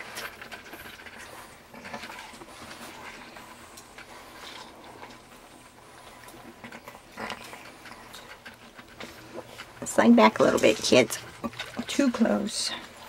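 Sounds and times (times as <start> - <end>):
puppy noises: 0.0 - 9.8.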